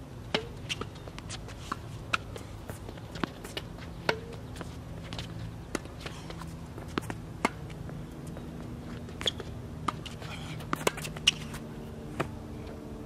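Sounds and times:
tennis ball bouncing: 0.2 - 12.8
racket striking tennis ball: 0.3 - 2.4, 3.2 - 4.5, 5.1 - 7.8, 9.1 - 12.4.

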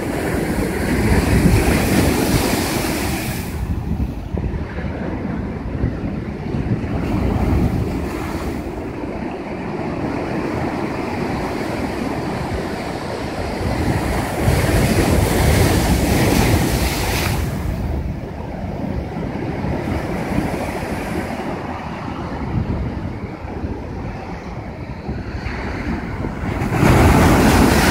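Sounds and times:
surf breaking against rocks: 25.4 - 27.9.

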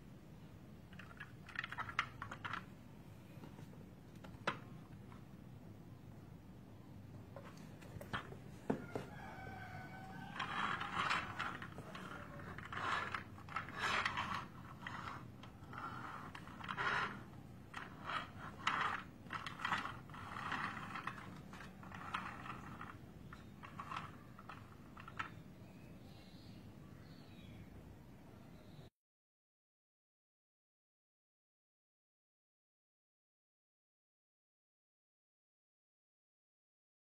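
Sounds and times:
plastic toy clicking and rattling: 0.9 - 2.7, 10.1 - 25.4
rooster crowing faintly: 8.5 - 13.3.

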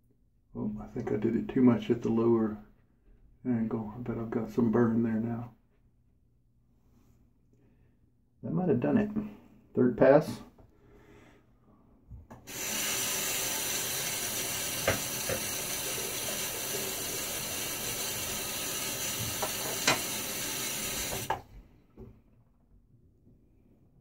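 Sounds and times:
tap running into sink: 12.3 - 21.5.

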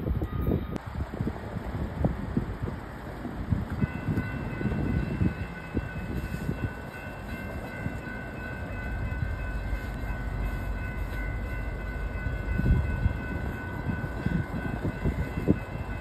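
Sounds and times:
freight train rumble: 0.0 - 16.0.

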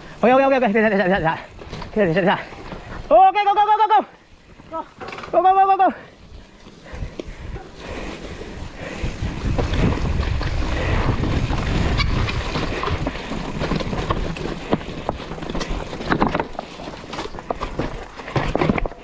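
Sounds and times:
bike rattling over ground: 0.0 - 19.0
wind buffeting microphone: 6.3 - 16.0
bike knocking on rocks: 9.4 - 19.0.

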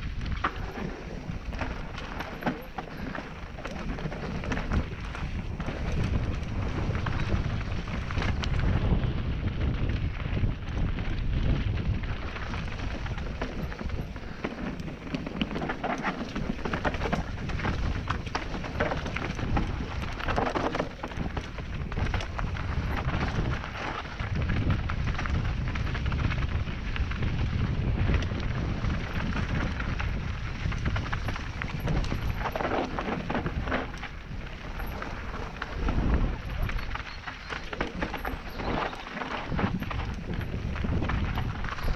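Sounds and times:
bike rattling over bumps: 0.0 - 41.9
wind buffeting microphone: 0.0 - 41.9
tyres crunching on gravel: 11.7 - 41.9.

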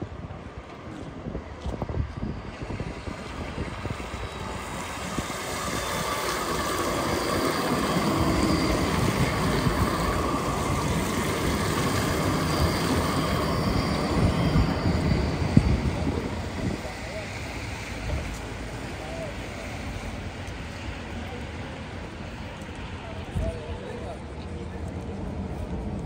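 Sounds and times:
tram passing on wet track: 0.0 - 26.0
faint high whine: 2.0 - 22.2.

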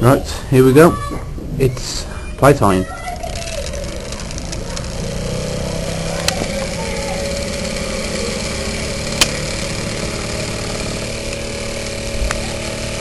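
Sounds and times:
model steam engine running: 3.1 - 13.0
sharp clicks: 3.3 - 5.1, 6.1 - 12.5.

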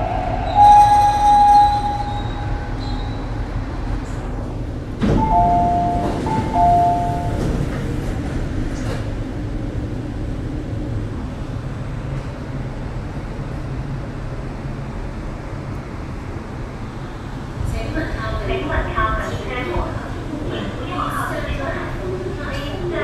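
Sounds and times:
train rumbling in tunnel: 0.0 - 23.0.

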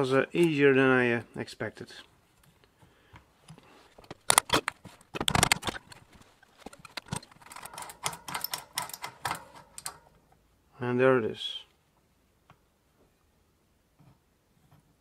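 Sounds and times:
metallic clicks and rattles: 4.0 - 10.2.

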